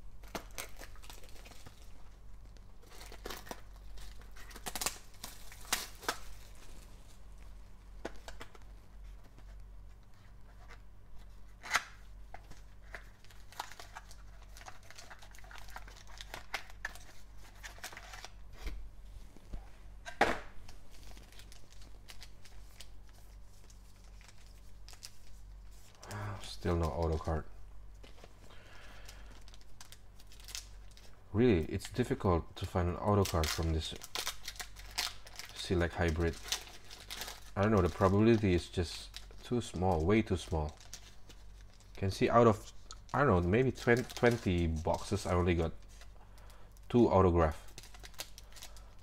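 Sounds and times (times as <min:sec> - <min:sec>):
shrink wrap tearing: 0:00.2 - 0:02.0, 0:02.8 - 0:06.9, 0:29.1 - 0:31.1, 0:32.6 - 0:46.1, 0:46.9 - 0:49.0
foil packs crinkling: 0:00.2 - 0:02.2, 0:02.8 - 0:07.1, 0:11.7 - 0:18.4, 0:20.7 - 0:27.4, 0:28.0 - 0:31.2, 0:31.8 - 0:49.0.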